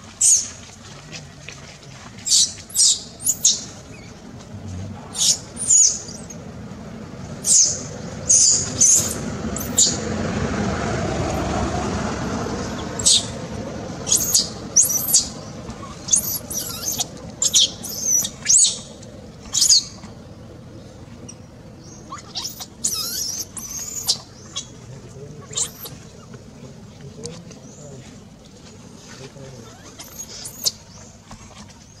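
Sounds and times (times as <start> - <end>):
low rumble: 0.0 - 29.7
baby monkey squealing: 2.2 - 3.6, 5.1 - 6.3, 7.4 - 10.0, 13.0 - 13.4, 14.1 - 18.9, 19.5 - 20.0, 22.1 - 24.7, 25.4 - 26.0, 29.7 - 30.8.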